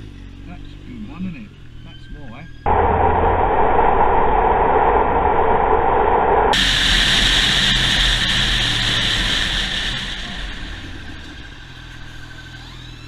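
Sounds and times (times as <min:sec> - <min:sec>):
wind rush on microphone: 0:02.7 - 0:11.9.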